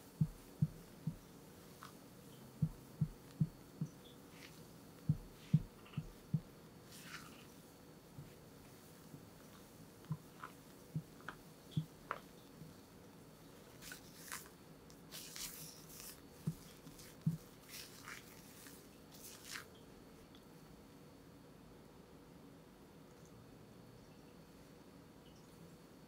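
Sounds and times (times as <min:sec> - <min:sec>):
spatula squishing wet batter: 0:13.8 - 0:19.8.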